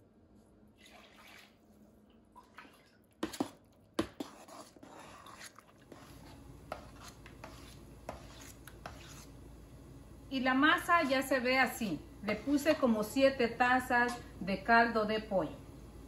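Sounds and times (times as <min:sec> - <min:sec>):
wet squelching dough: 0:02.3 - 0:09.3.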